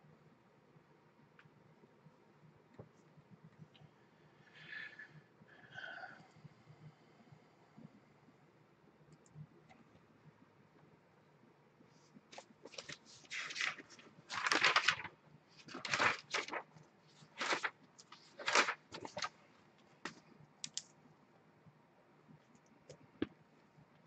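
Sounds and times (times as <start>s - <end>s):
paper envelopes rustling: 12.3s - 19.4s.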